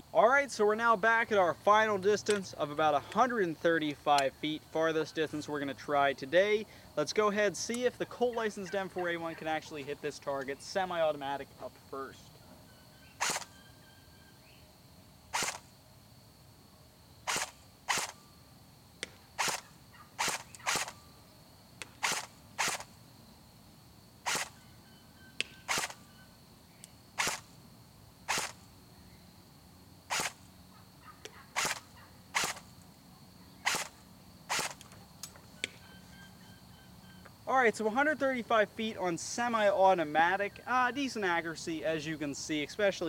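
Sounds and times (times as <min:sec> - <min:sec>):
airsoft gun shots: 0:13.2 - 0:13.5, 0:15.3 - 0:15.6, 0:17.3 - 0:18.2, 0:19.0 - 0:21.0, 0:21.8 - 0:22.9, 0:24.2 - 0:24.6, 0:25.4 - 0:26.0, 0:27.2 - 0:27.5, 0:28.3 - 0:28.6, 0:30.1 - 0:30.4, 0:31.6 - 0:32.6, 0:33.6 - 0:34.8.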